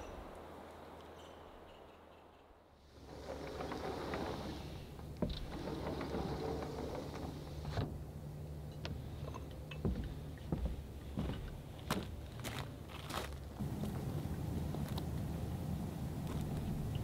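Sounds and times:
low outdoor rumble: 0:00.0 - 0:17.0
footsteps walking: 0:09.8 - 0:15.4, 0:16.2 - 0:16.8.

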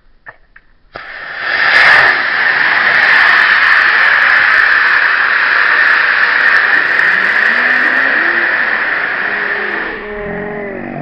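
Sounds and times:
rocket motor hissing: 0:00.9 - 0:10.0
onlookers' voices: 0:03.8 - 0:11.0.

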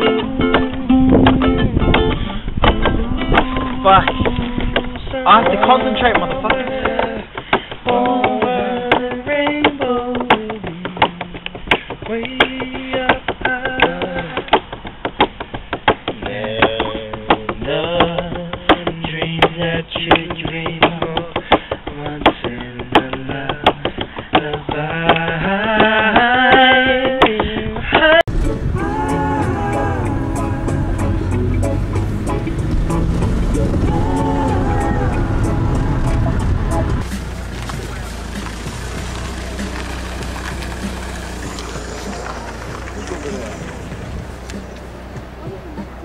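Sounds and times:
man singing: 0:00.0 - 0:14.6, 0:16.1 - 0:37.1
acoustic guitar strumming: 0:00.0 - 0:21.4, 0:28.3 - 0:46.0.

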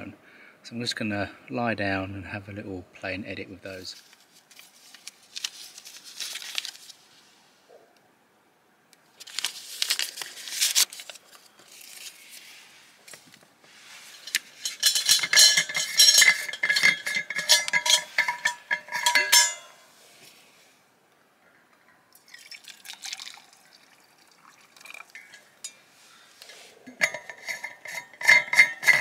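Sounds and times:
paper wrapper tearing and crinkling: 0:04.0 - 0:07.0, 0:09.2 - 0:12.5
metal clinks with ringing: 0:14.6 - 0:19.8.

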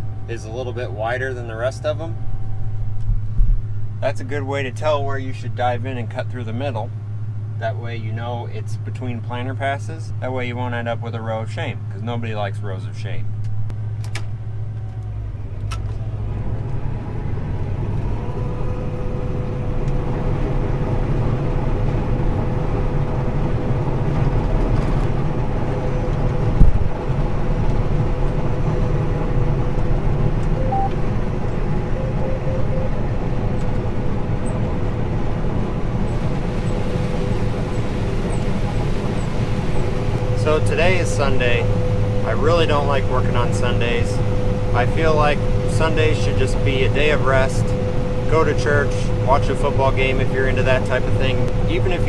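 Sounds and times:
combine harvester engine drone: 0:00.0 - 0:52.0
machine whine: 0:14.6 - 0:52.0.

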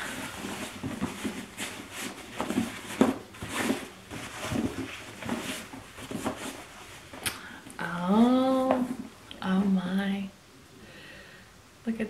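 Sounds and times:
cloth bag rustling: 0:00.0 - 0:07.2.

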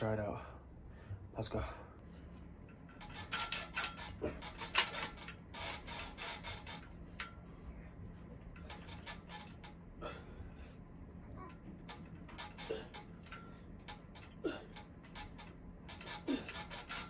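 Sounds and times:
metal dip bars clicking and creaking: 0:02.6 - 0:07.4, 0:08.4 - 0:09.9, 0:11.4 - 0:17.0.

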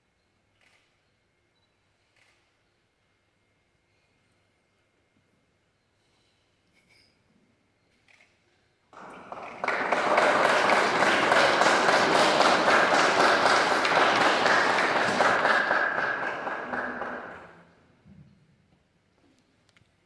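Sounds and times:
congregation applauding: 0:09.0 - 0:17.7.

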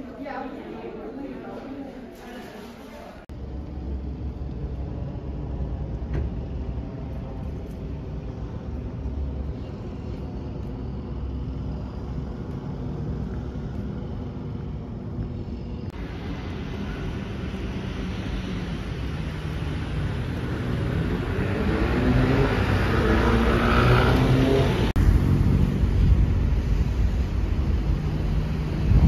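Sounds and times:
distant road traffic: 0:03.3 - 0:29.0
wind on microphone: 0:23.6 - 0:29.0.

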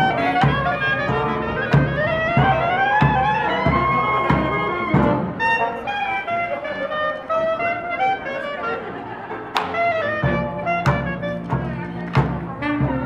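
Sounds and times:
steady low beat: 0:00.0 - 0:05.8, 0:09.7 - 0:13.0
clarinet: 0:00.0 - 0:13.0
saxophone: 0:00.0 - 0:13.0
sousaphone: 0:00.0 - 0:13.0.

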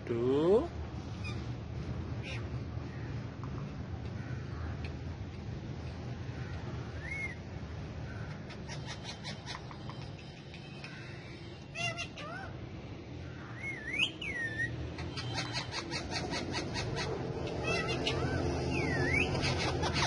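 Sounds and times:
parakeets chirping: 0:01.1 - 0:01.6, 0:02.2 - 0:02.6, 0:05.9 - 0:20.0.

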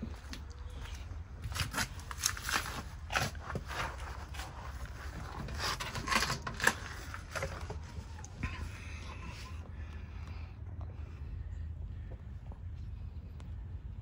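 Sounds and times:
scrapes rustles and clicks: 0:00.2 - 0:09.7.

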